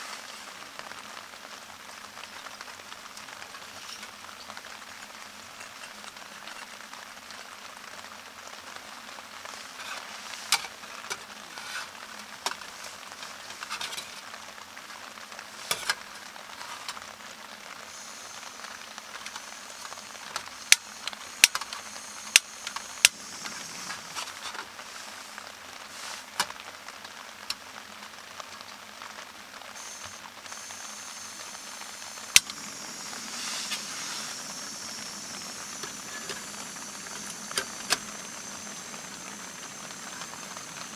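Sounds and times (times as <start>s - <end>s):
rain patter: 0.0s - 40.9s
gas burner hissing: 9.4s - 14.4s, 15.4s - 26.7s, 29.6s - 40.9s.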